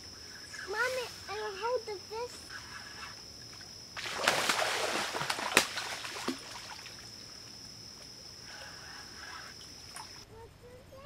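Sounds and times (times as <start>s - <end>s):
sharp water slap: 4.0s - 7.0s
fish splashing in shallow water: 4.0s - 8.0s.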